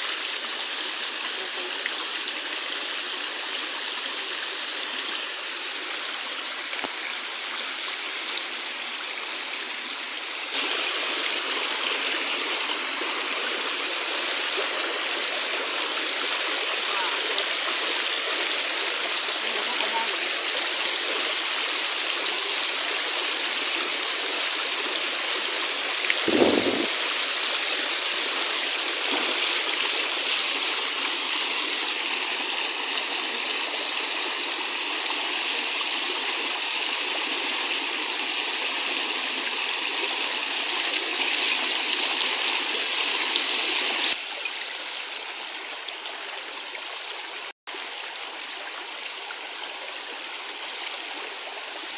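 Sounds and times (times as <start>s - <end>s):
stream rushing over stones: 0.0s - 51.9s.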